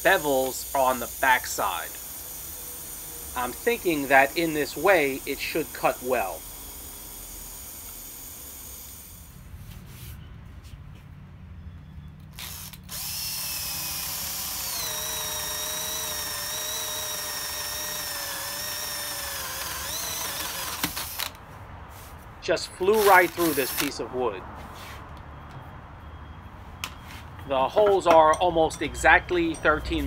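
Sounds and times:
bench grinder humming: 0:00.0 - 0:09.4, 0:12.4 - 0:21.4
cordless drill boring into wood: 0:00.0 - 0:09.4, 0:12.4 - 0:21.4, 0:22.9 - 0:24.0.

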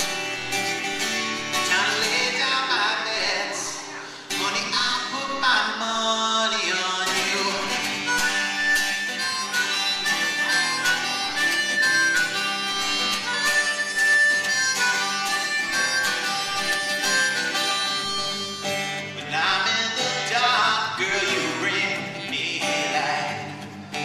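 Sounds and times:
strummed acoustic guitar: 0:00.0 - 0:24.0
man singing: 0:01.6 - 0:08.1, 0:17.0 - 0:24.0
harmonica solo: 0:07.1 - 0:21.6.

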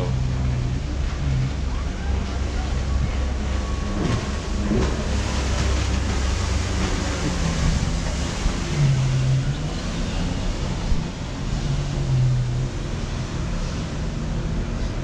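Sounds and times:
jet ski engine running: 0:00.0 - 0:15.0
low drone: 0:00.0 - 0:15.0
sea waves: 0:00.0 - 0:15.0
wind: 0:00.0 - 0:15.0.

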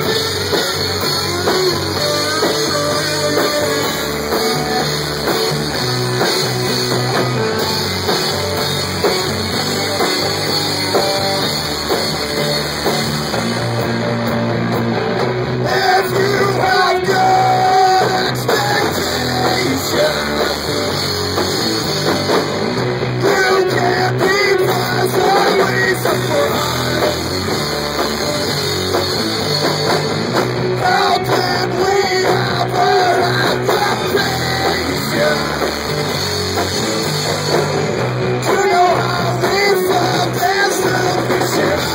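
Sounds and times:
person singing into a microphone: 0:00.0 - 0:04.8, 0:15.6 - 0:20.9, 0:23.2 - 0:27.5, 0:30.8 - 0:35.9, 0:38.4 - 0:41.9
drum kit: 0:00.0 - 0:41.9
electric guitar: 0:00.0 - 0:41.9.

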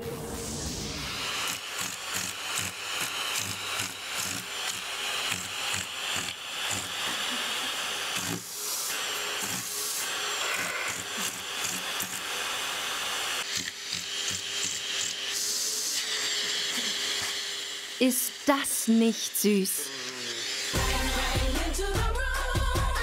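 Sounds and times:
vacuum cleaner suction hiss: 0:00.1 - 0:21.6.

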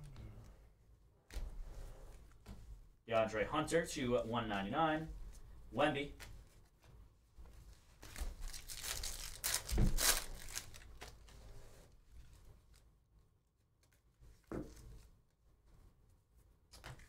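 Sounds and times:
foil wrapper tearing and crinkling: 0:08.2 - 0:11.2.

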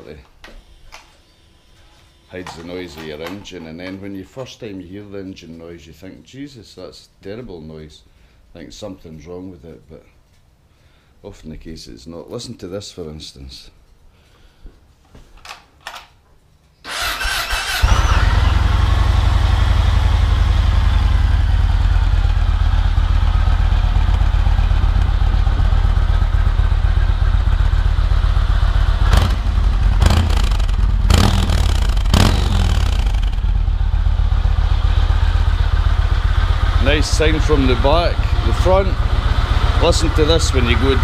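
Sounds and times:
person talking: 0:01.9 - 0:10.2, 0:36.8 - 0:41.0
motorcycle engine starting and idling: 0:16.9 - 0:41.0.

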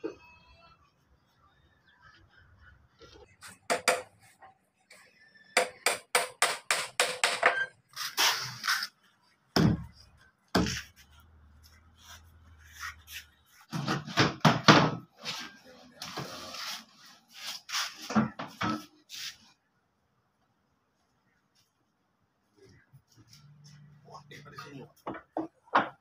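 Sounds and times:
hammer striking wood: 0:03.7 - 0:04.1, 0:05.6 - 0:07.6, 0:10.5 - 0:10.8.

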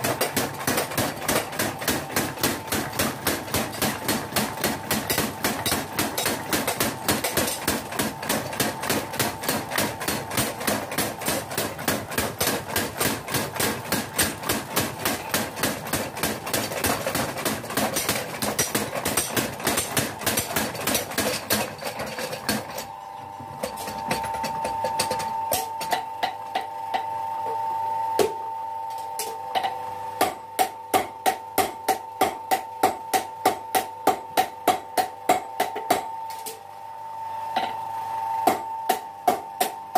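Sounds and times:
mechanical power hammer pounding: 0:00.0 - 0:22.9
steady machine hum: 0:00.0 - 0:39.9.

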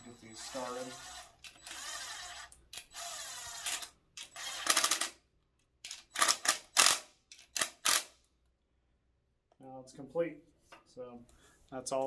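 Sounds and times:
cordless drill whirring: 0:00.0 - 0:05.1
rapid clicking of drill: 0:00.4 - 0:05.2, 0:05.8 - 0:08.1.

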